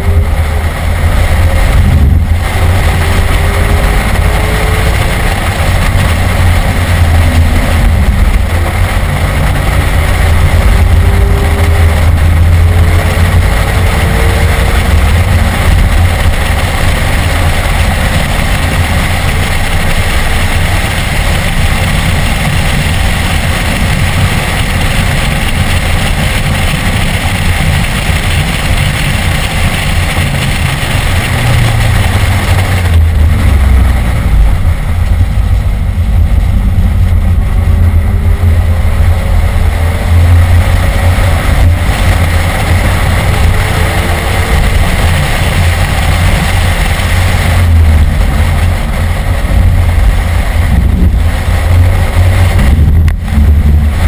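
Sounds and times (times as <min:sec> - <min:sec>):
car engine revving through gears: 0:00.0 - 0:54.0.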